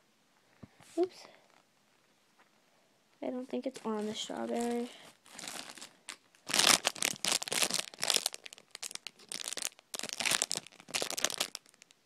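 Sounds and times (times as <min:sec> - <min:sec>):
crinkly packaging rustling: 0:03.6 - 0:12.0.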